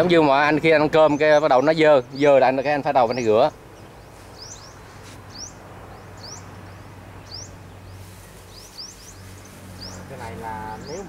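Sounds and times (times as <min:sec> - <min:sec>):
bird chirping: 0:00.0 - 0:11.0.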